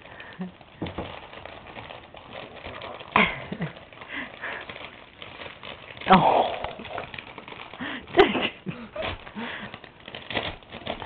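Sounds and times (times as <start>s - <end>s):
plastic bag rustling and crinkling: 0.0s - 11.0s.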